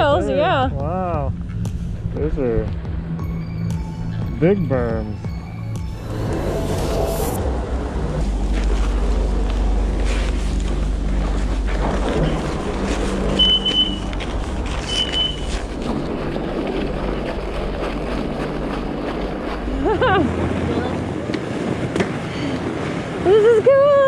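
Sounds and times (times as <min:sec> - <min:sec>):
chairlift mechanical rumble: 0:05.8 - 0:23.4
short high beeps: 0:13.4 - 0:14.0.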